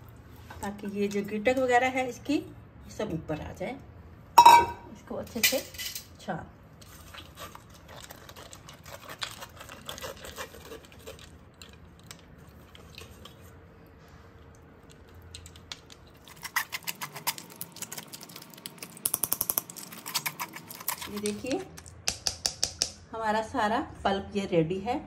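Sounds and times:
spoon scraping pulp through strainer: 6.8 - 11.8.

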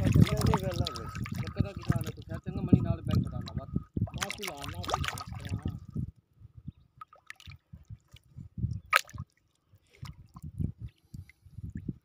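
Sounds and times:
waves lapping against boat: 0.0 - 5.8.

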